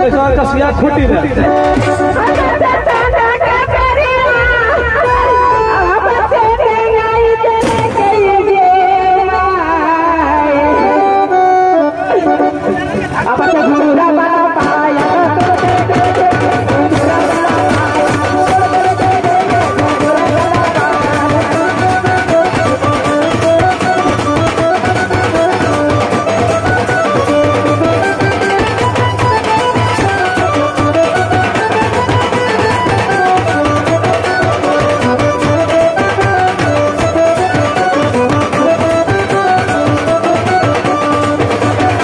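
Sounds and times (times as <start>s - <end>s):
drums beaten with sticks: 0.0s - 6.6s, 7.2s - 8.7s, 14.5s - 42.0s
instrumental folk melody: 1.0s - 3.2s, 10.5s - 42.0s.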